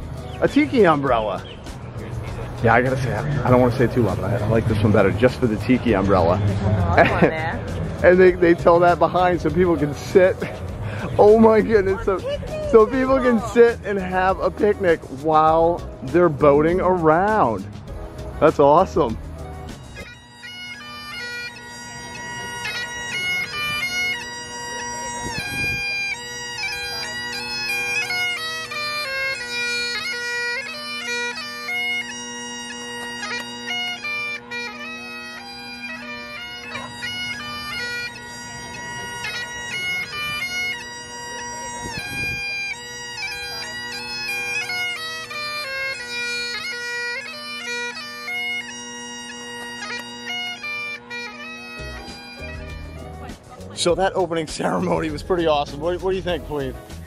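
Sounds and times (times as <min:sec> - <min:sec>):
bagpipe playing a tune: 0:00.0 - 0:57.0.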